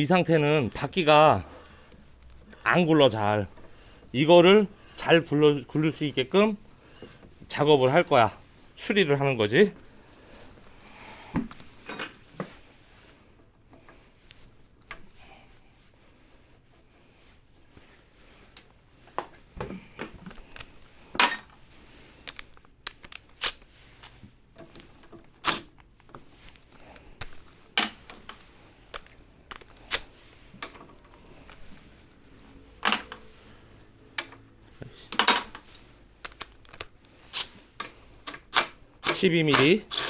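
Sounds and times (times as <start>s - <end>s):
metal hand tools clinking: 21.2s - 21.6s.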